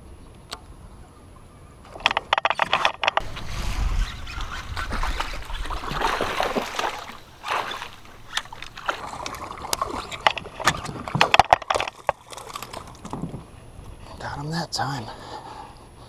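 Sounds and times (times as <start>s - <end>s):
water splashing and sloshing: 1.9s - 14.0s
fish splashing and knocking: 4.3s - 13.5s.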